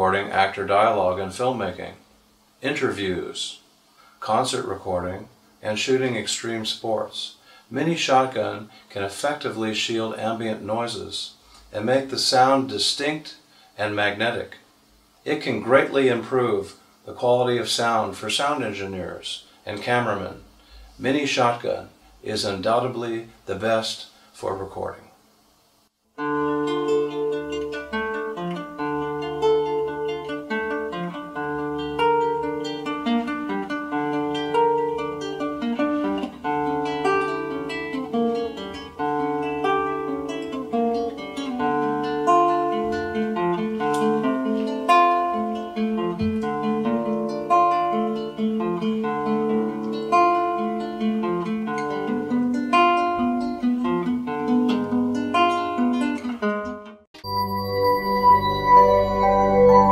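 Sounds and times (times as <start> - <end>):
classical guitar fingerstyle: 26.2 - 57.0.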